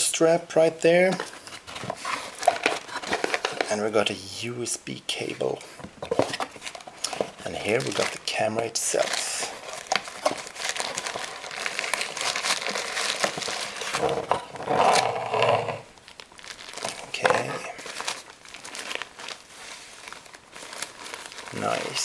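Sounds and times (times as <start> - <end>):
paper crumpling and crinkling: 1.0 - 3.9, 6.0 - 22.0.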